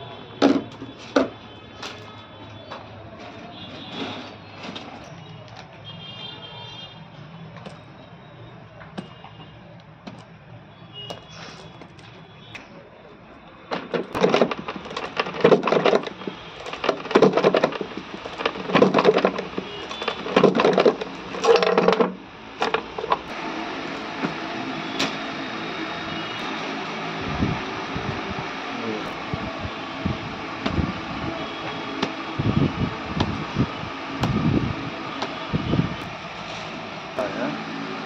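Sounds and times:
mechanical whir: 13.8 - 38.0.

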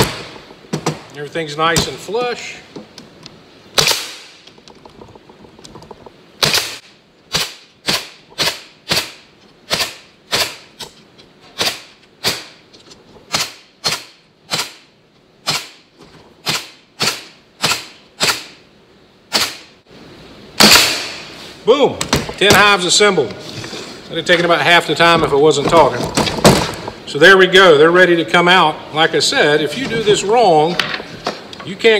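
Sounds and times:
pneumatic stapler shots: 3.8 - 4.4, 6.4 - 10.9, 11.6 - 12.6, 13.3 - 15.8, 16.4 - 18.6, 19.3 - 19.7, 20.6 - 21.3.

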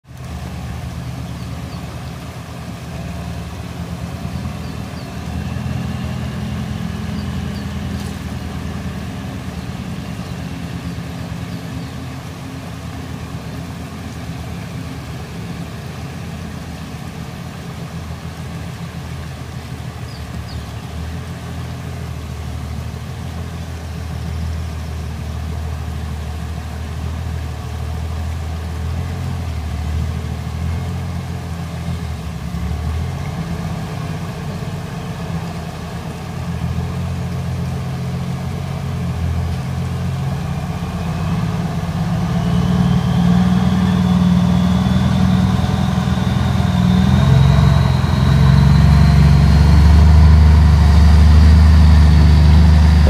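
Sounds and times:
truck diesel engine rumbling: 0.0 - 53.0
river rushing over rocks: 0.1 - 42.5.

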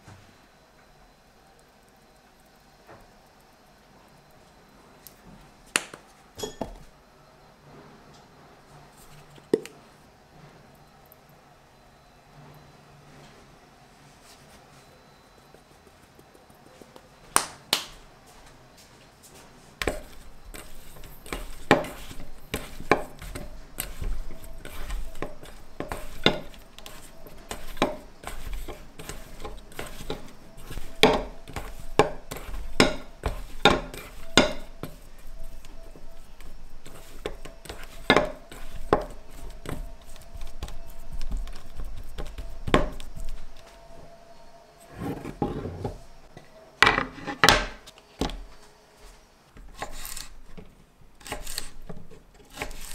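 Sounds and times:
hands mixing meat in bowl: 19.8 - 43.7
metal bowl knocking on wood: 30.9 - 35.0.

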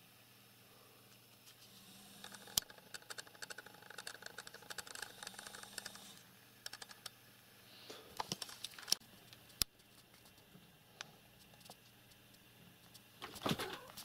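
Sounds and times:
sharp clicks: 2.2 - 7.2.

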